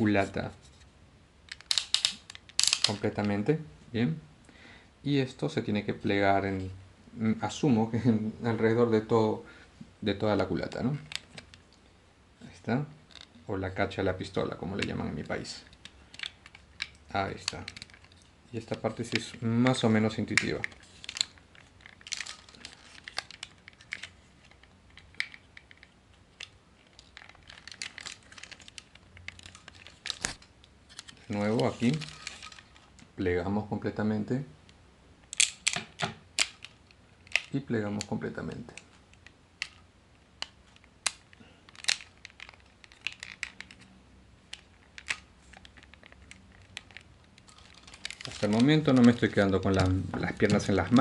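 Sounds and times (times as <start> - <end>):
plastic parts clicking and snapping: 1.5 - 3.1, 10.7 - 11.8, 13.1 - 13.4, 14.4 - 33.1, 35.2 - 43.9, 44.5 - 51.0
handling rustle: 14.4 - 33.2, 44.5 - 51.0.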